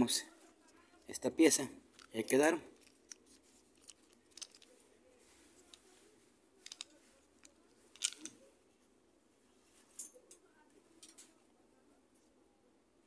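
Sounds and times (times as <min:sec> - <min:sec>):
hard plastic parts clicking: 0:01.9 - 0:04.7, 0:06.6 - 0:08.4.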